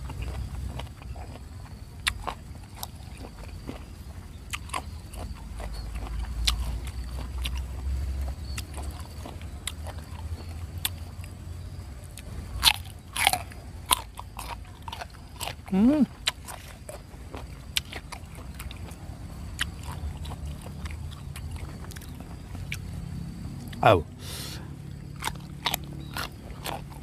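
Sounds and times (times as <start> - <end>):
crunchy bites into fruit: 12.2 - 22.9, 23.6 - 27.0.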